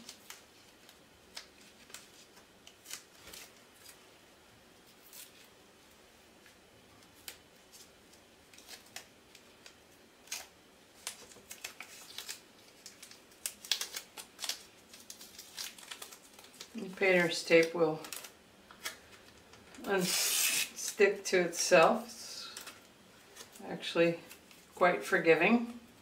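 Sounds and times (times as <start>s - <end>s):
tape tearing: 0.0s - 4.0s, 8.5s - 16.8s, 18.0s - 19.0s, 19.8s - 21.0s.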